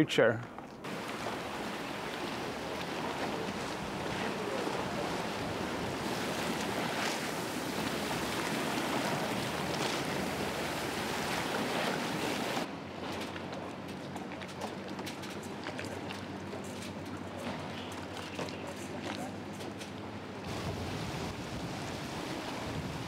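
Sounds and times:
water rushing along boat hull: 0.8s - 23.0s
wind buffeting microphone: 20.5s - 23.0s.

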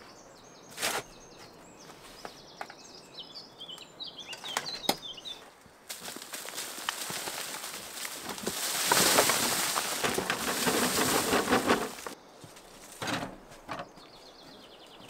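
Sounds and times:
soil and stones scraping: 0.6s - 2.4s, 4.3s - 14.2s.

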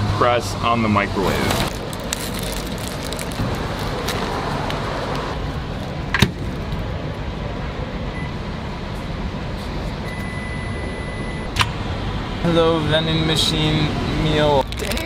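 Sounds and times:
low background rumble: 0.6s - 13.3s
faint short beep: 10.0s - 11.5s.

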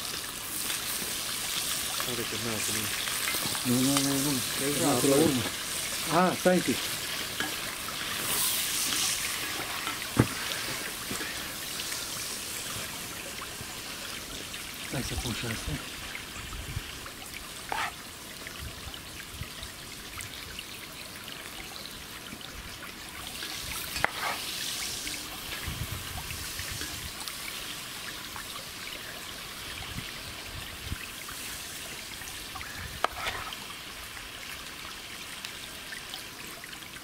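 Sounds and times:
steady hiss: 0.0s - 17.0s, 23.3s - 34.3s.

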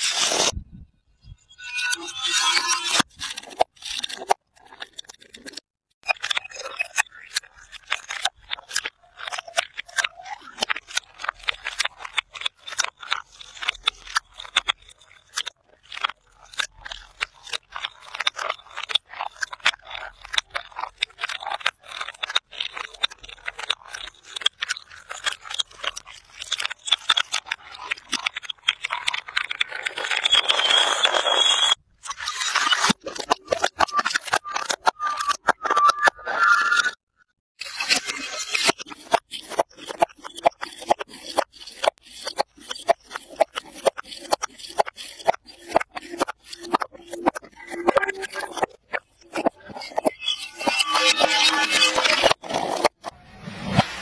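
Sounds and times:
glass breaking and crunching: 2.1s - 36.1s, 46.0s - 52.9s.

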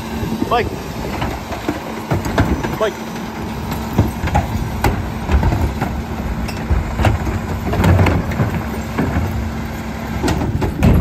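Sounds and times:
garbage truck running: 0.0s - 11.0s
plastic carts banging: 10.2s - 11.0s.

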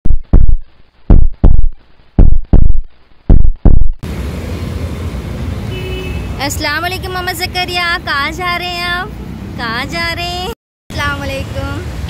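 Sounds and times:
deep double thumps heartbeat rhythm: 0.0s - 4.0s
street traffic hum: 3.0s - 12.0s.

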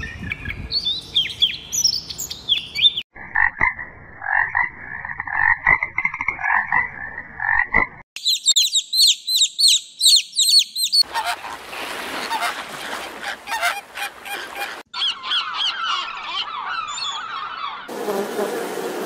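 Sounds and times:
din of many birds: 0.0s - 3.5s, 4.3s - 19.0s
high-pitched bird chirps: 8.2s - 11.1s, 14.9s - 17.9s
flamingos honking: 11.0s - 18.0s
gull downward-sliding calls: 12.2s - 17.9s.

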